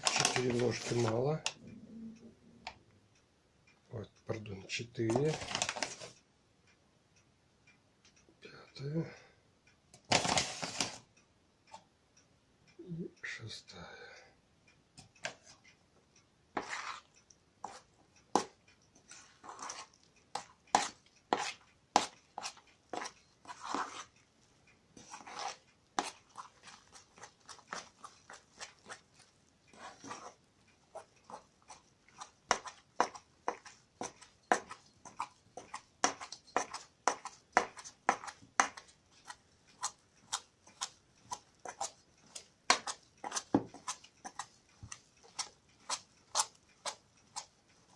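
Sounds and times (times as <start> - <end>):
spoon scraping bowl: 16.6 - 24.2, 25.0 - 47.9
spoon clacking against bowl: 31.0 - 47.9.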